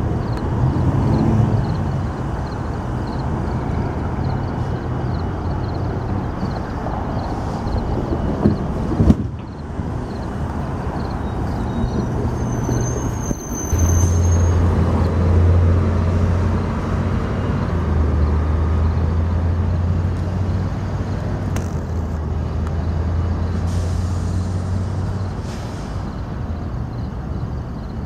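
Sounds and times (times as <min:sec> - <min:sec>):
diesel locomotive engine drone: 0:00.0 - 0:28.0
high-pitched squeal: 0:11.0 - 0:15.2.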